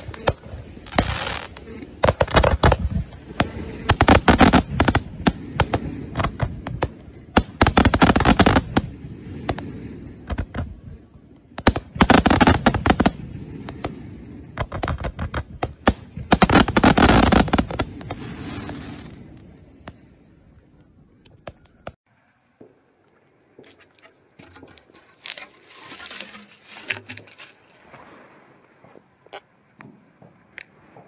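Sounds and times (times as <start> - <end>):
fireworks crackling pops: 0.0 - 20.1.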